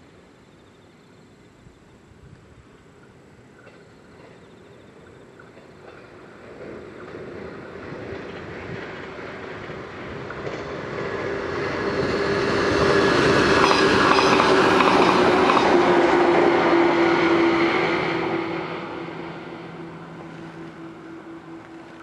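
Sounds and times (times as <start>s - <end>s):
electric train passing: 0.0s - 22.0s
train motor hum: 5.4s - 22.0s.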